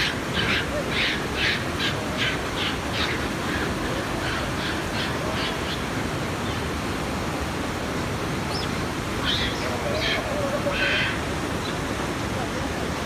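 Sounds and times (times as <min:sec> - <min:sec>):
river rushing: 0:00.0 - 0:13.0
monkeys screeching: 0:09.2 - 0:11.2.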